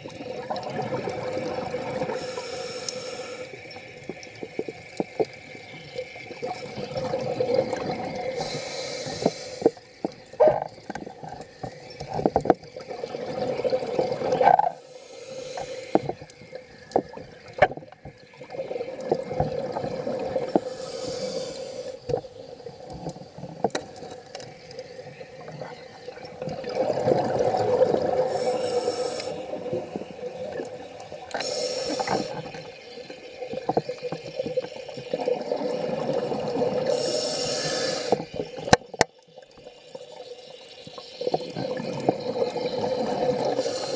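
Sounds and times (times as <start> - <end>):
regulator inhalation hiss: 2.0 - 3.8, 8.2 - 9.9, 14.7 - 16.6, 20.4 - 22.5, 28.1 - 33.1, 36.8 - 38.6, 43.3 - 43.9.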